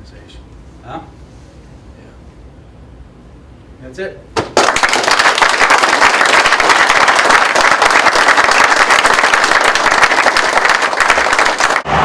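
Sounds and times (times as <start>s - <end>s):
people applauding: 4.5s - 11.9s.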